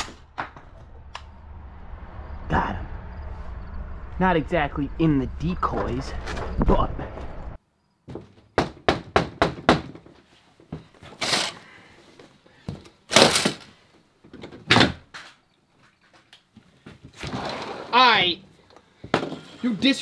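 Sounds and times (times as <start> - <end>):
knocking on door: 8.1 - 10.0.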